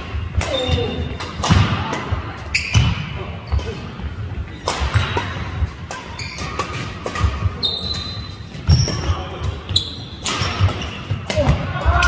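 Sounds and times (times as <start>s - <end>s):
rackets striking shuttlecock: 0.0s - 3.8s, 4.4s - 12.0s
shoes squeaking on wooden floor: 7.6s - 11.2s.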